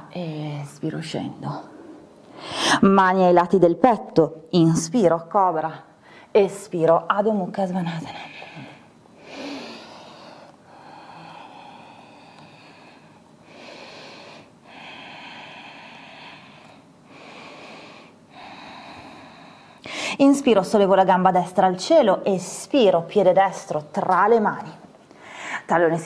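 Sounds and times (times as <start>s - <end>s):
person breathing deeply: 8.2s - 20.2s.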